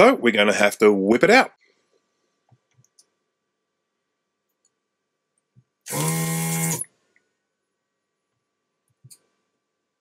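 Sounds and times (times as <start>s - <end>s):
desoldering pump buzz: 5.9s - 6.9s.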